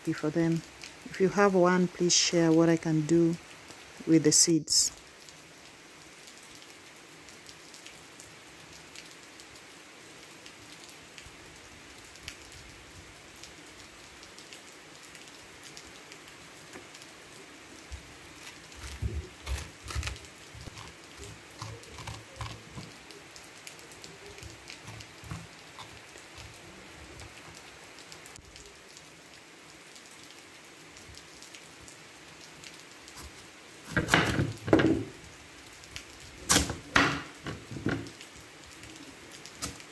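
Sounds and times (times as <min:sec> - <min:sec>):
steady rain falling: 0:00.0 - 0:39.9
knife chopping onto wooden board: 0:33.9 - 0:35.1, 0:36.5 - 0:38.1.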